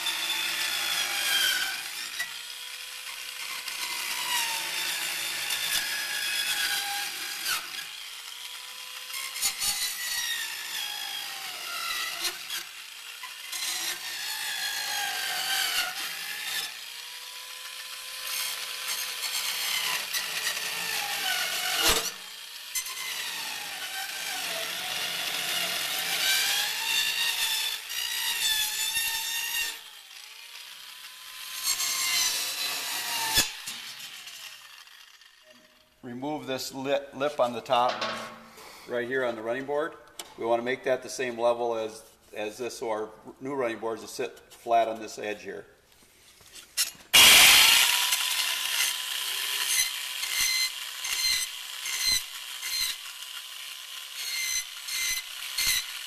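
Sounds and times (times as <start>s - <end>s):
electric saw motor: 0.0s - 36.0s, 46.8s - 56.0s.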